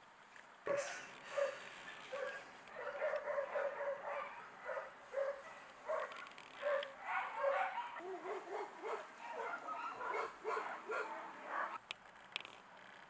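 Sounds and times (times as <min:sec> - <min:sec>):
dog yelping: 0:00.7 - 0:11.8
dog whining: 0:05.2 - 0:11.8.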